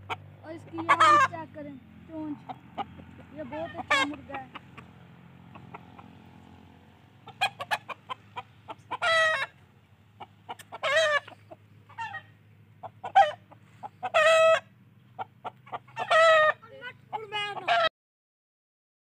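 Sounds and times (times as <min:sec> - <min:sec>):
loud chicken calls: 0:00.0 - 0:01.4, 0:02.4 - 0:06.5, 0:07.2 - 0:17.9
chickens clucking: 0:00.0 - 0:17.9.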